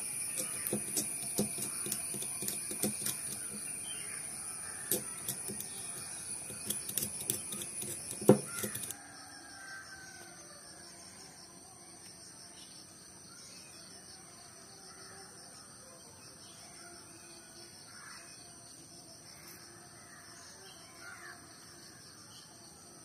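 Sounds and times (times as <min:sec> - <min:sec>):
metal blade scraping battery terminal: 0:00.0 - 0:08.9.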